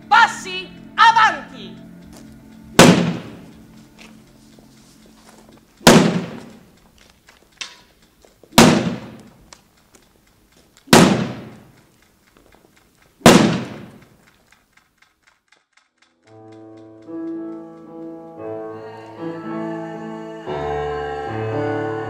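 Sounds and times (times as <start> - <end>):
footsteps clicking: 0.7 - 18.8
stick striking loud cracks: 2.8 - 3.5, 5.8 - 6.7, 8.5 - 9.3, 10.9 - 11.8, 13.2 - 14.2.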